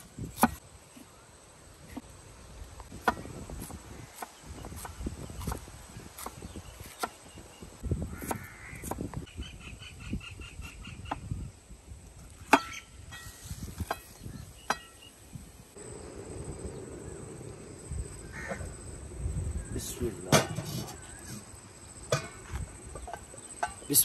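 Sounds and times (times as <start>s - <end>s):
birds calling: 0.4s - 11.5s, 12.5s - 13.1s, 14.0s - 24.0s.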